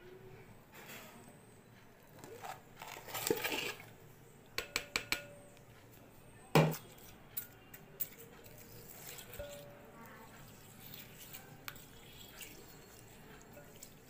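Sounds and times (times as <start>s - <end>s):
spatula scraping glass bowl: 2.2s - 3.9s, 8.5s - 14.0s.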